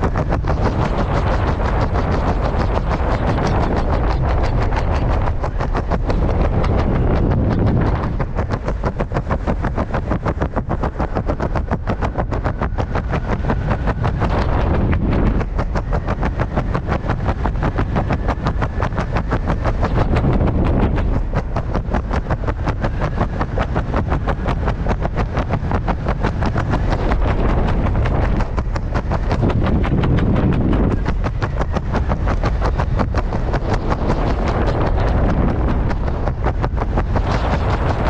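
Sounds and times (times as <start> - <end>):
wind fluttering over microphone: 0.0 - 38.0.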